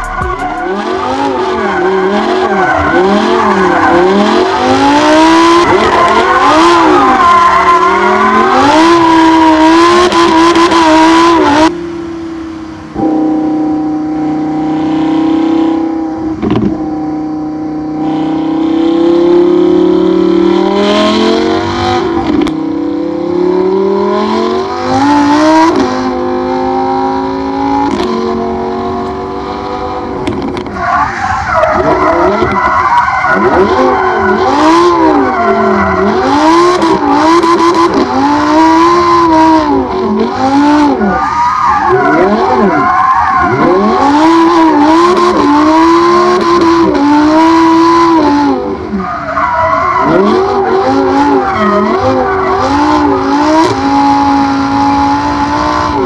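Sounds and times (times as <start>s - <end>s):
tyre squeal: 0.0s - 10.4s, 30.6s - 47.0s, 48.9s - 56.0s
sports car engine revving: 0.0s - 30.8s, 31.4s - 56.0s.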